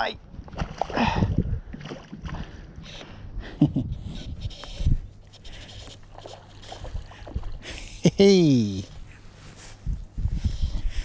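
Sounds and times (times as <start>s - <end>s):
wind on microphone: 0.2s - 7.7s, 9.7s - 11.0s
man breathing: 8.9s - 11.0s.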